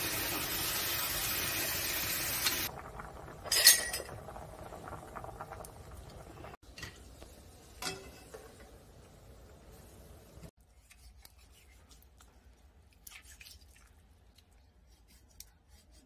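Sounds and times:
dishes clinking: 0:03.4 - 0:04.2, 0:07.8 - 0:08.7.

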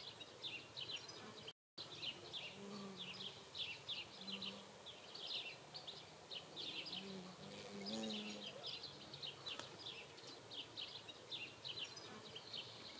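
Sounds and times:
faint low drawn-out call: 0:00.2 - 0:12.9.

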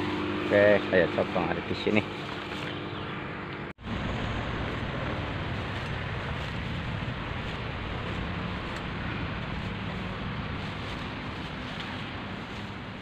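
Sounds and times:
wind on microphone: 0:03.8 - 0:13.0
sickle swishing through grass: 0:04.6 - 0:13.0.

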